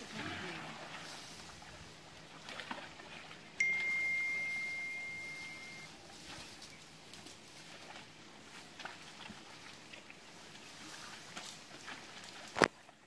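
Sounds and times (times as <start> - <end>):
high pure ping: 3.6 - 5.9.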